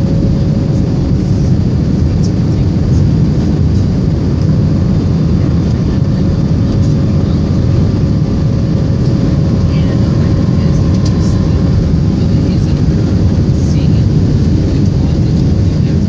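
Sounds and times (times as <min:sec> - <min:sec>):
faint steady hum: 0:00.0 - 0:16.0
jet cabin engine rumble: 0:00.0 - 0:16.0.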